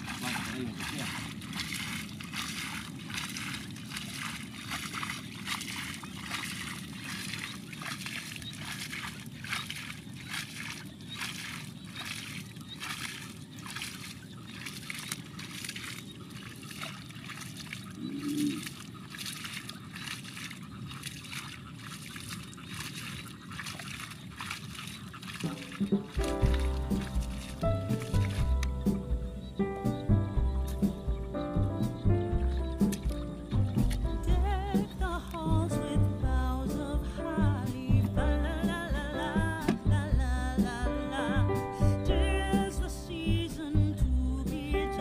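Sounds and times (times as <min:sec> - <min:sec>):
hands splashing in muddy water: 0:00.0 - 0:29.3, 0:32.3 - 0:35.7.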